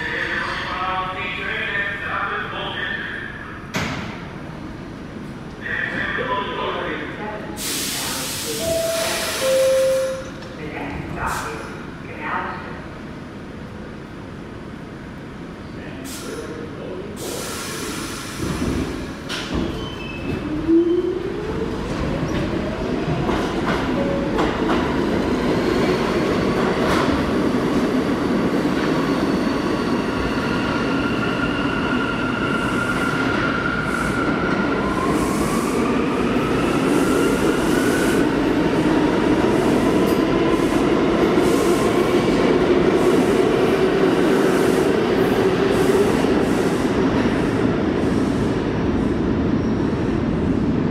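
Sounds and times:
train wheels rumbling on rail: 0:16.1 - 0:50.9.

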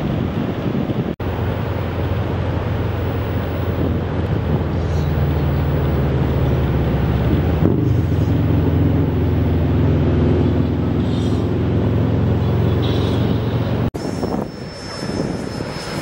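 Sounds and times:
aircraft engine droning: 0:00.0 - 0:16.0
rushing noise: 0:00.0 - 0:16.0
thin high whine: 0:12.6 - 0:16.0.

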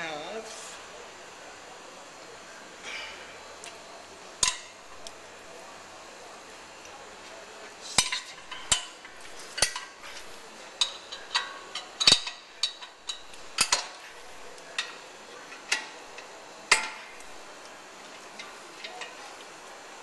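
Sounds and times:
ratchet wrench clinking: 0:10.8 - 0:14.0.

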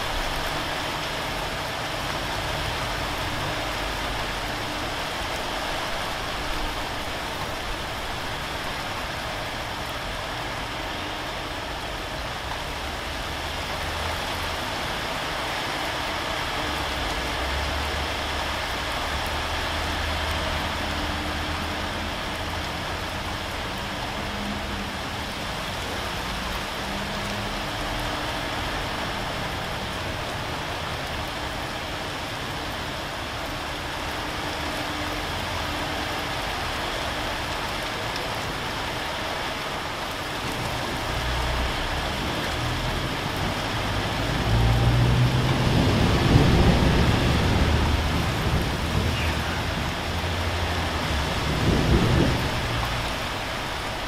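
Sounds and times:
rain on a corrugated roof: 0:00.0 - 0:54.0
thunder rolling: 0:44.4 - 0:50.0, 0:51.1 - 0:53.4.

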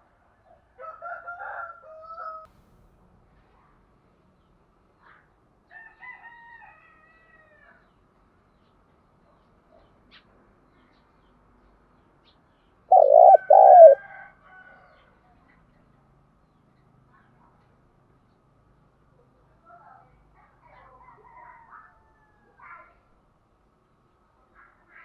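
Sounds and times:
dove cooing: 0:12.9 - 0:14.0.

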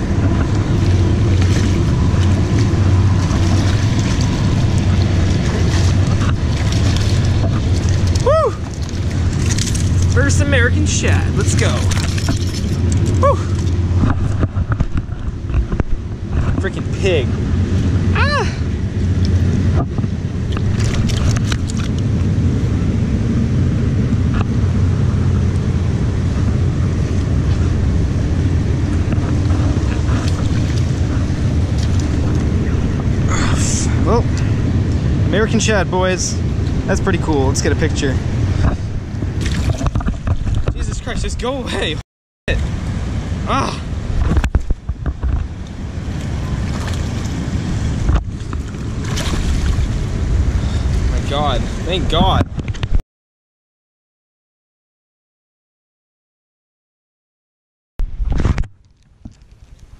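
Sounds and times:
rushing shallow river water: 0:00.0 - 0:19.6, 0:25.2 - 0:52.2
wind buffeting microphone: 0:00.0 - 0:53.0.

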